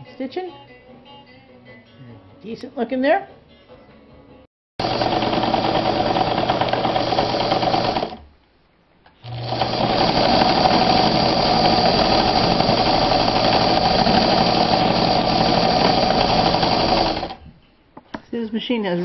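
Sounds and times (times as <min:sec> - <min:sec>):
sewing machine stitching: 0:04.8 - 0:08.2, 0:09.2 - 0:17.4.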